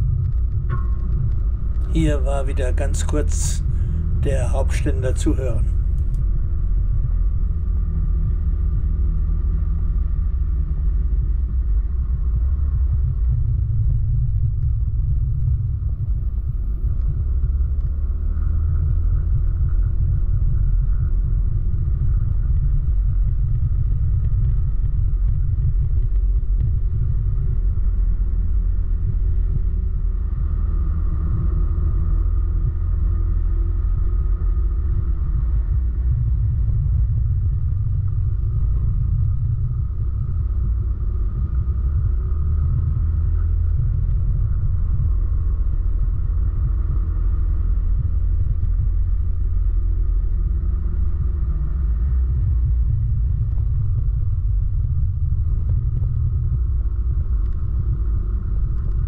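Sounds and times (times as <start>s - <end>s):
wind rumble on microphone: 0.0s - 59.0s.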